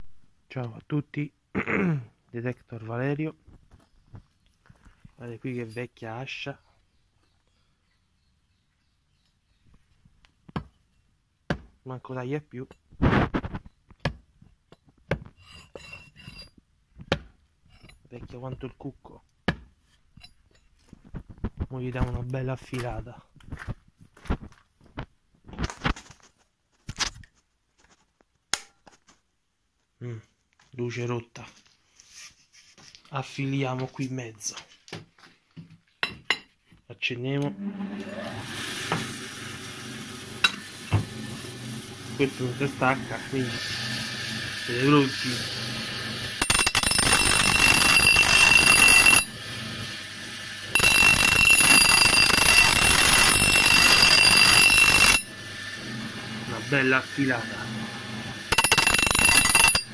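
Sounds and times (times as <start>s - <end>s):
axe grinding on spinning wheel: 46.3s - 49.9s, 50.6s - 55.9s, 58.5s - 59.9s.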